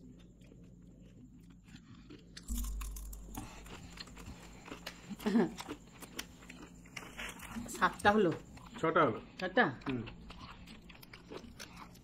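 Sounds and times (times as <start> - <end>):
chewing and crunching chocolate: 0.0 - 12.0.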